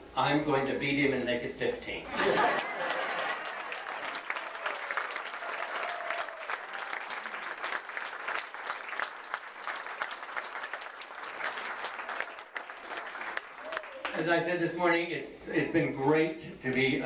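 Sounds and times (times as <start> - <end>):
crowd applauding: 2.2 - 14.4.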